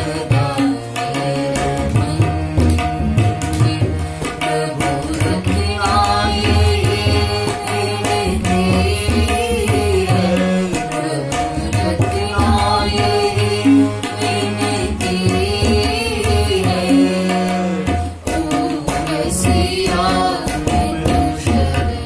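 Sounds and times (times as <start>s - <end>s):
woman singing devotional song: 0.0s - 22.0s
man singing devotional song: 4.4s - 22.0s.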